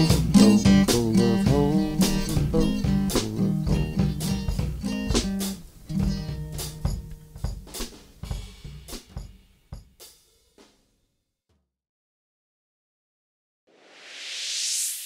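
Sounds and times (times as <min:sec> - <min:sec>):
drum and chord hits ringing: 0:00.0 - 0:10.0
band playing drums and guitar: 0:00.0 - 0:10.2.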